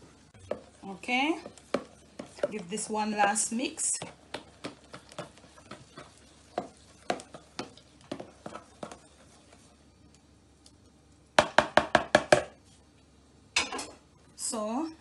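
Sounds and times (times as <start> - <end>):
spoon stirring thick batter: 0.0 - 10.8.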